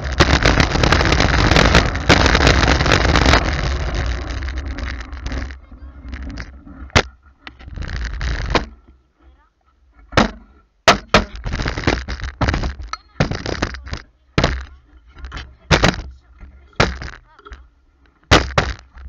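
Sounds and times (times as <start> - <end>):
sharp knocks and cracks: 0.0 - 3.6, 6.3 - 7.1, 7.8 - 8.8, 10.1 - 16.2, 16.8 - 17.6, 18.2 - 19.0
rushing noise: 0.0 - 7.1.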